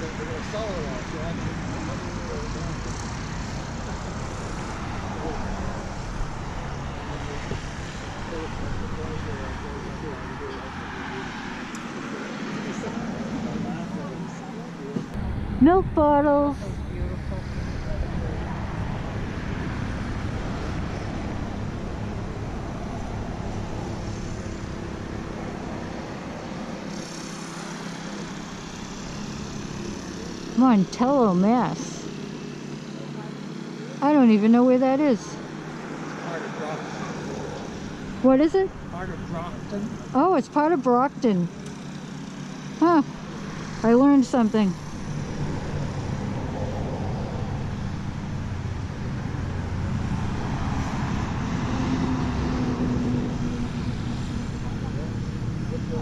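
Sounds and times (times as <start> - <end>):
distant engine drone: 0.0 - 56.0
road traffic rumbling: 0.0 - 56.0.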